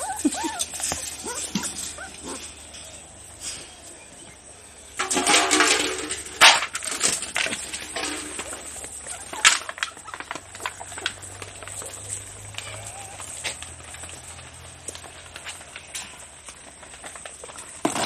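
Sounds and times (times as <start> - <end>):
puppies eating clicks: 0.0 - 3.2, 5.1 - 18.0
kibble rattling onto metal dishes: 0.0 - 3.7, 4.8 - 18.0
metal dishes clinking: 5.0 - 7.3.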